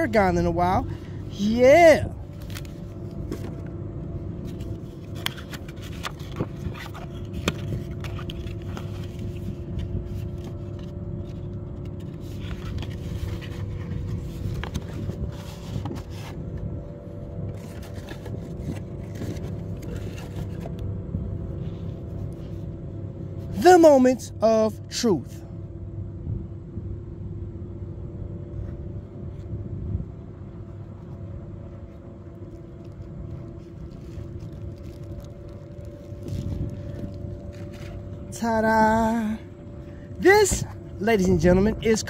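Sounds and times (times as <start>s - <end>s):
faint continuous hum: 0.0s - 42.0s
steady low rumble: 0.0s - 42.0s
cardboard box being handled: 31.8s - 38.3s.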